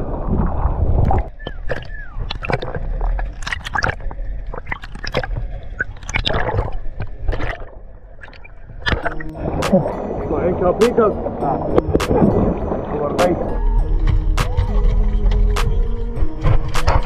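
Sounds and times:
sea water gurgling and sloshing: 0.0 - 17.0
bubble pops and clicks: 1.0 - 2.8, 11.8 - 12.4.

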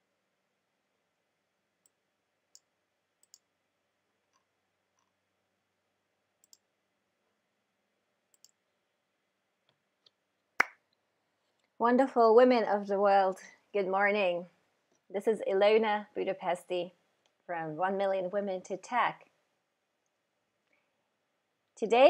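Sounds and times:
faint sharp clicks: 1.8 - 3.5, 6.4 - 6.7, 8.3 - 8.6.

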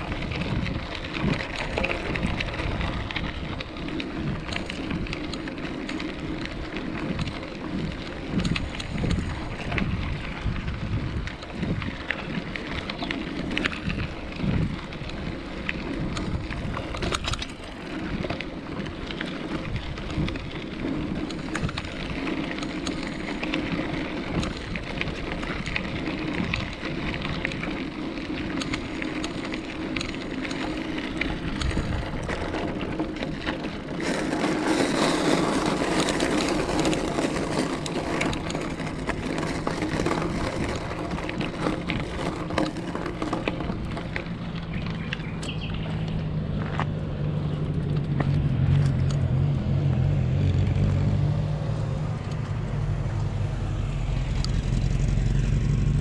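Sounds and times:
bike rattles and knocks: 0.0 - 49.4
bicycle tyres rolling on path: 0.0 - 56.0
low rumble: 34.4 - 56.0.

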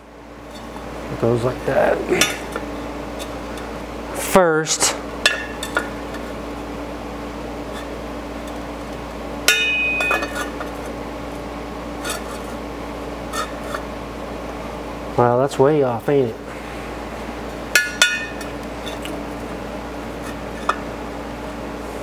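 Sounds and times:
steady low hum: 0.0 - 22.0
sharp metallic clank: 9.5 - 10.5
metal plate clinking and scraping: 9.5 - 10.6.

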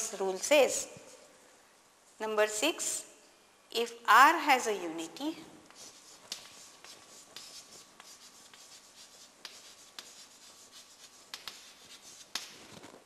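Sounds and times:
chalk tapping on board: 5.7 - 12.6
chalk scratching on chalkboard: 5.7 - 12.8.

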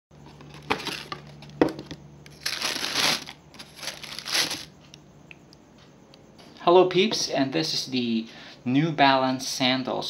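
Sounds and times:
cardboard shoebox being handled: 0.2 - 4.7
tissue paper crinkling: 2.3 - 4.7.

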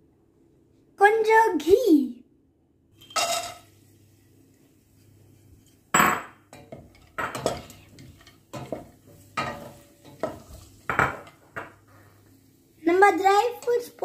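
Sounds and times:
nuts clattering into pan: 3.0 - 3.7
spatula knocking and scraping pan: 5.0 - 12.0.

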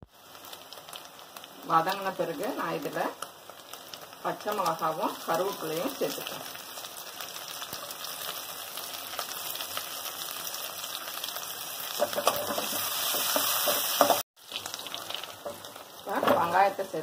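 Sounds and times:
chillies sizzling in hot oil: 0.0 - 17.0
metal spatula scraping: 12.0 - 14.2.

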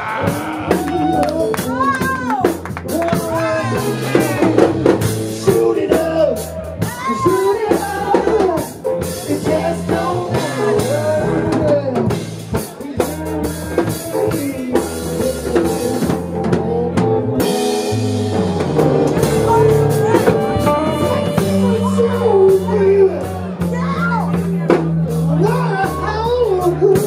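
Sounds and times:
drum kit beat: 0.0 - 27.0
electric bass guitar: 0.0 - 27.0
other pitched instruments: 3.2 - 26.0.

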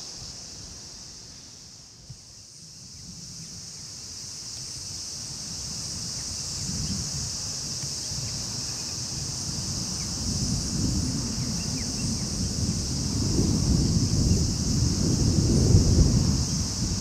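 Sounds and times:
insects buzzing: 0.0 - 17.0
wind buffeting microphone: 5.7 - 17.0.

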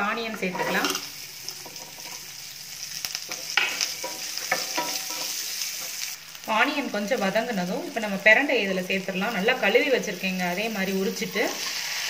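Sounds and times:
shallots sizzling in oil: 0.0 - 12.0
spatula scraping pan: 0.4 - 2.3, 3.3 - 6.1.

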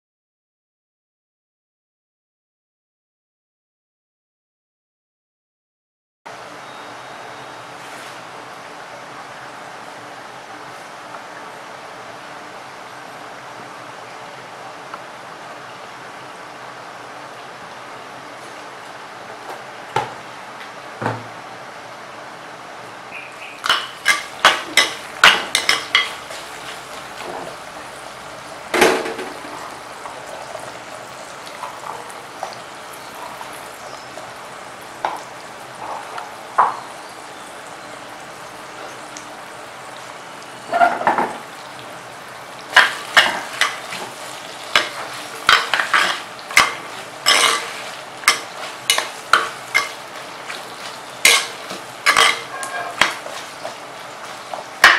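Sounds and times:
hot oil sizzling: 6.3 - 54.9
ladle scraping clay pot: 52.1 - 53.4.

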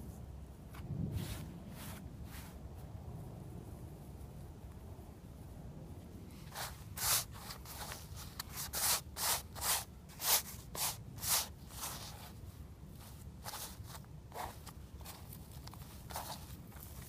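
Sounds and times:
dry grass rustling in hands: 6.4 - 17.0.

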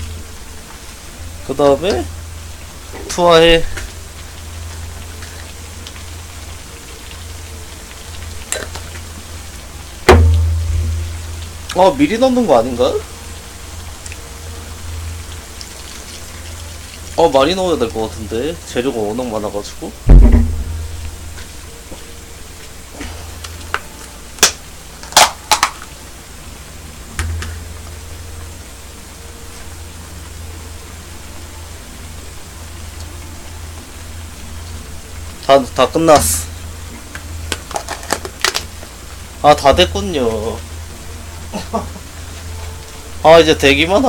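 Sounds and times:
food sizzling in a pot: 0.0 - 44.0
sharp knock: 10.1 - 11.0, 20.1 - 20.8.

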